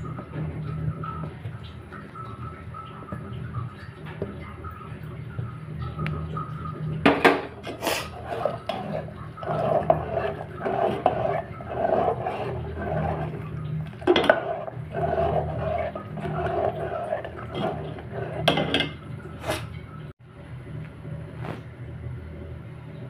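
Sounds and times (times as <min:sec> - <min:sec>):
metal spoon scraping a pot: 0:07.3 - 0:19.7.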